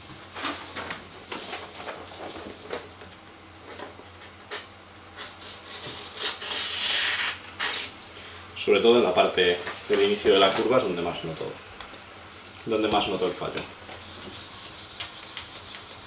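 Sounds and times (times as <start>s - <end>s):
paper rustling: 0.4s - 3.1s.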